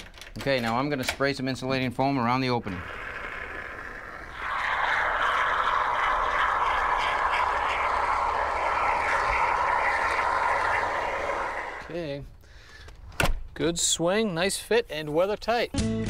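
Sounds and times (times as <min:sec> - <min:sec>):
spray foam can hissing: 0:02.7 - 0:11.9.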